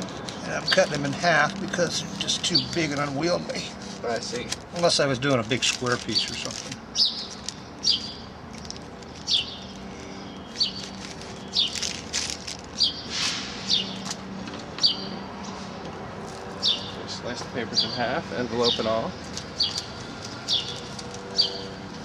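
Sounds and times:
paper rustling: 0.0s - 7.6s, 10.5s - 13.4s
small bird chirping: 7.0s - 8.4s, 9.0s - 11.9s, 12.7s - 13.1s, 14.8s - 15.2s, 16.5s - 17.0s, 18.7s - 21.8s.

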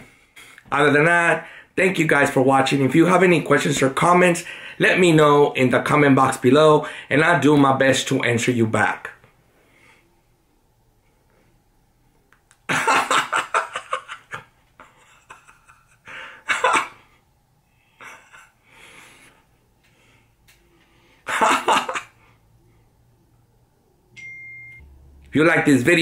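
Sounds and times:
breathing: 1.4s - 1.8s, 4.4s - 4.8s, 6.8s - 7.1s, 9.5s - 10.2s, 16.0s - 16.5s, 18.6s - 21.3s
man laughing: 12.7s - 17.2s, 18.0s - 18.6s, 21.3s - 22.3s.

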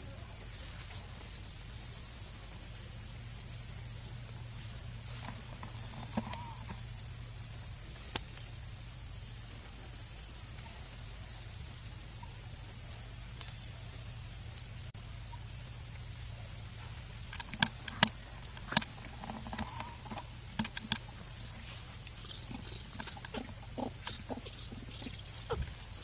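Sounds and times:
steady low hum: 0.0s - 26.0s
sharp clicks and knocks: 17.3s - 21.1s.

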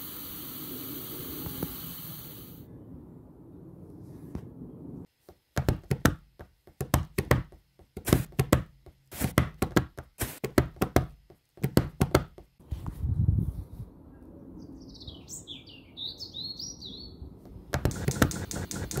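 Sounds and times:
bursts of sharp knocks: 17.7s - 19.0s.

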